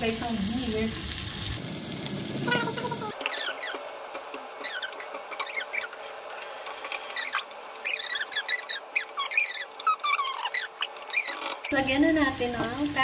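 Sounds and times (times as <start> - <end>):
meat searing in hot oil: 0.0 - 13.0
short falling squeaks and chirps: 3.2 - 3.9, 4.6 - 6.0, 7.1 - 11.7.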